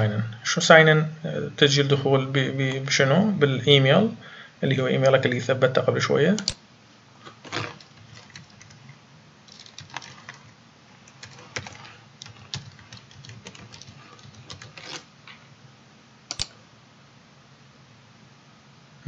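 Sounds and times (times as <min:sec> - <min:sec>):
keyboard typing clicks: 0:07.7 - 0:08.9, 0:09.5 - 0:10.5, 0:11.1 - 0:15.0, 0:16.3 - 0:16.6.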